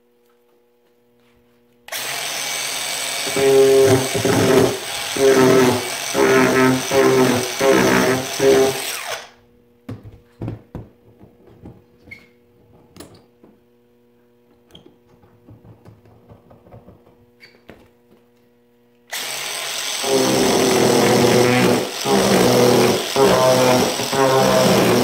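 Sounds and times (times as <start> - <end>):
angle grinder carving wood: 1.9 - 9.4, 19.1 - 25.0.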